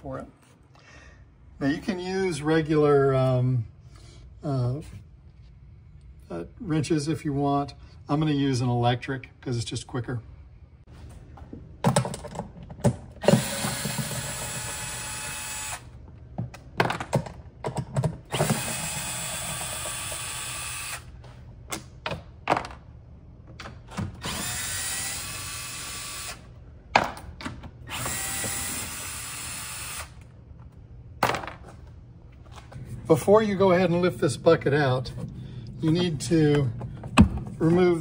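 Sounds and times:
cordless driver spinning: 27.9s - 30.3s.

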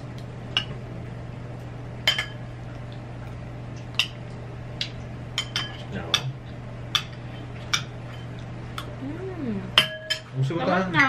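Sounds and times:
steady low hum: 0.0s - 11.0s
metal spoons clinking on bowls: 9.8s - 10.4s.

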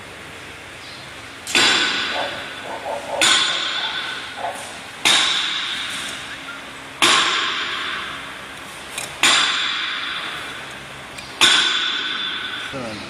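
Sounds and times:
metallic clangs ringing: 1.5s - 6.3s, 7.0s - 8.4s, 9.2s - 10.6s, 11.4s - 12.8s.

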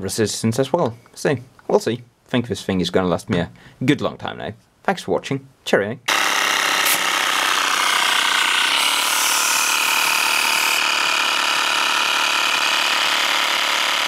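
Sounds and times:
air compressor running: 6.1s - 14.0s.

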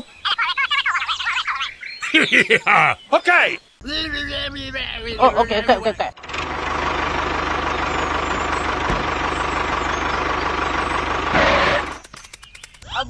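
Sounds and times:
tractor engine running: 6.0s - 12.2s.

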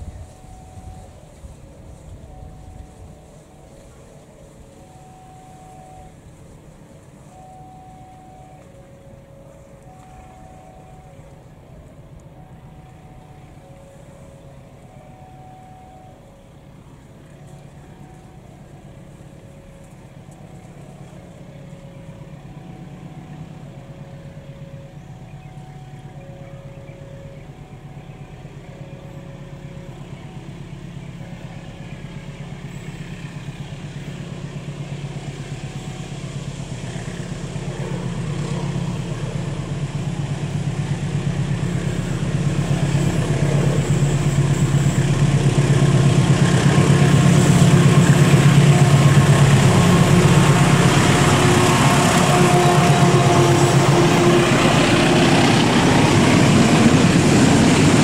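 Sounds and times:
level-crossing alarm chiming: 0.0s - 6.4s, 7.2s - 32.0s
diesel locomotive engine drone: 0.0s - 58.0s.

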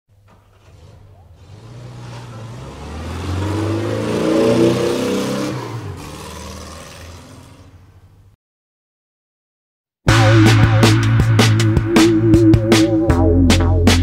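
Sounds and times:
vehicle engine passing by: 0.4s - 7.8s.

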